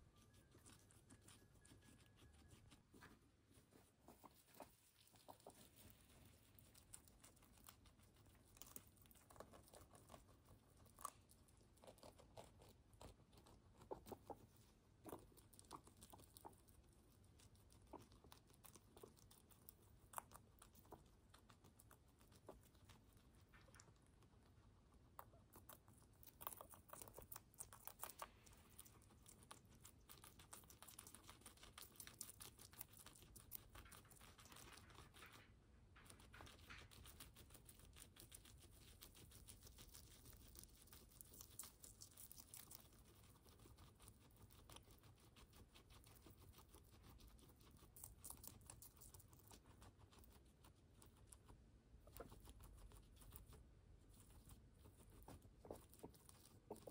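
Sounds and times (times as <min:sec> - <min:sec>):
guinea pigs crunching and nibbling: 0:00.0 - 0:56.9.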